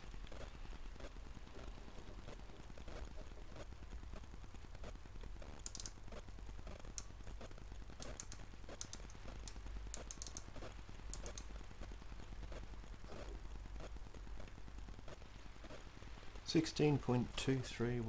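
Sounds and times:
small sharp clicks: 0:05.5 - 0:06.2, 0:07.9 - 0:11.6.

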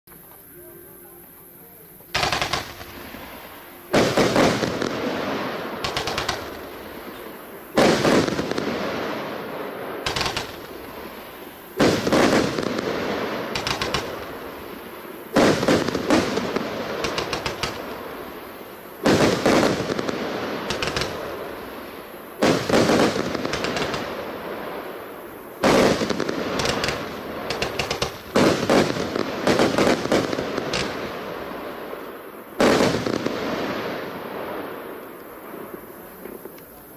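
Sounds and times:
firework reports: 0:00.8 - 0:36.9
firework pops and crackle: 0:02.2 - 0:02.9, 0:05.8 - 0:06.7, 0:10.1 - 0:11.0, 0:11.8 - 0:14.4, 0:15.3 - 0:18.0, 0:19.0 - 0:21.3, 0:22.4 - 0:24.2, 0:25.6 - 0:31.2, 0:35.1 - 0:36.9.

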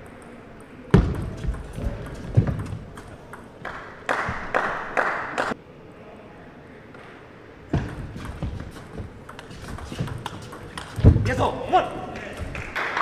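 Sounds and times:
table tennis ball knocking: 0:01.0 - 0:03.6, 0:07.7 - 0:11.4
shoes thumping on court: 0:07.7 - 0:11.5.

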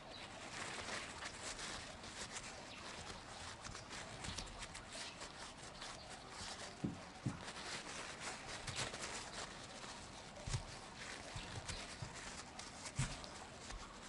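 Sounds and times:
paper tissue crinkling: 0:00.0 - 0:14.0.

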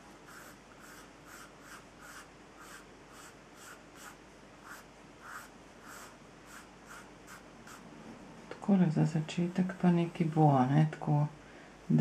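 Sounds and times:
pencil sketching on paper: 0:00.0 - 0:07.8.

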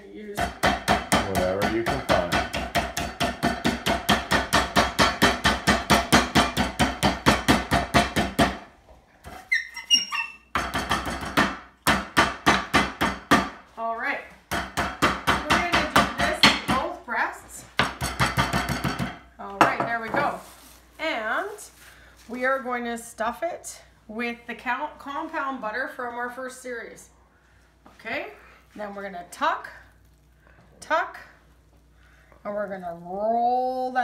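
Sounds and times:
rolling pin pounding meat: 0:00.4 - 0:08.7, 0:10.5 - 0:13.6, 0:14.5 - 0:16.9, 0:17.8 - 0:20.0.

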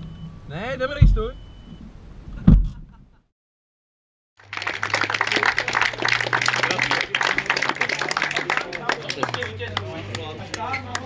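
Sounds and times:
small crowd clapping: 0:04.4 - 0:11.0.

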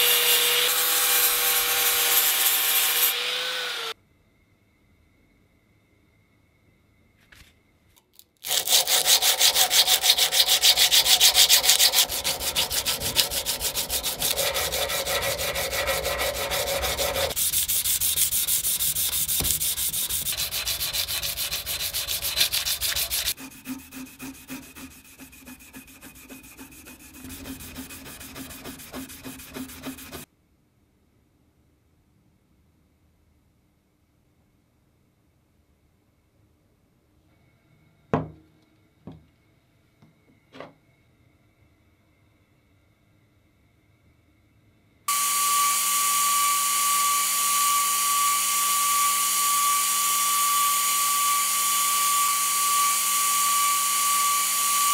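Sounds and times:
sandpaper rubbing on metal: 0:08.4 - 0:30.3.

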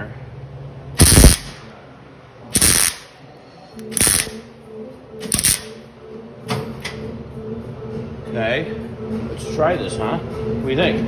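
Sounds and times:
steady low hum: 0:00.0 - 0:10.8
welding arc crackling: 0:01.0 - 0:01.7, 0:02.6 - 0:03.1, 0:03.8 - 0:04.4, 0:05.3 - 0:05.7.

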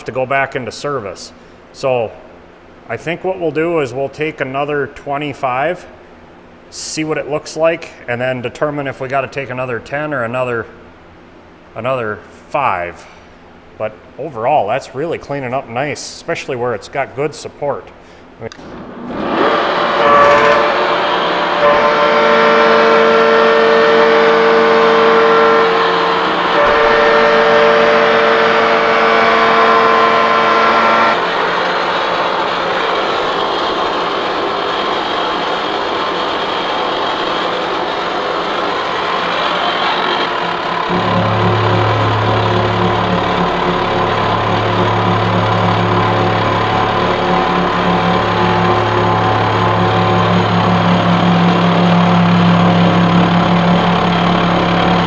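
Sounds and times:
deep steady hum: 0:00.0 - 0:55.0
boring mill gear whine: 0:18.6 - 0:55.0.

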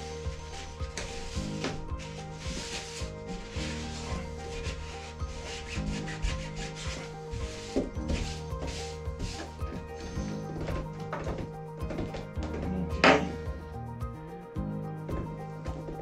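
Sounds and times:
hand rubbing bathtub drain: 0:00.0 - 0:13.6
background music: 0:00.0 - 0:16.0.

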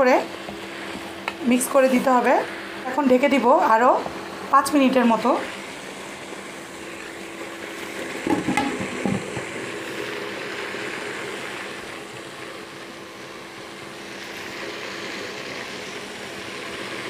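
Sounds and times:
glass lid clattering on pot: 0:08.3 - 0:09.5.

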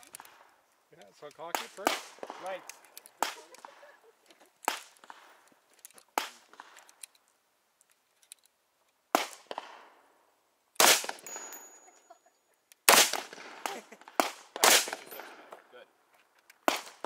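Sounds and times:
gunshots with echo: 0:12.9 - 0:15.5.

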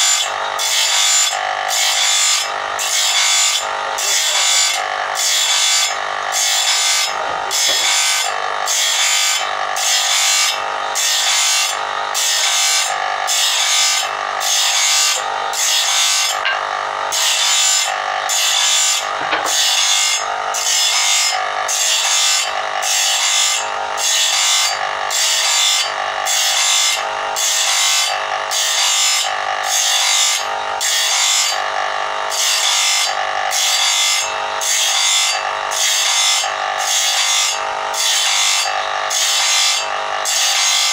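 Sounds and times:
grinding wheel on steel: 0:00.0 - 0:40.9
motor humming: 0:05.9 - 0:08.7, 0:14.0 - 0:20.6.

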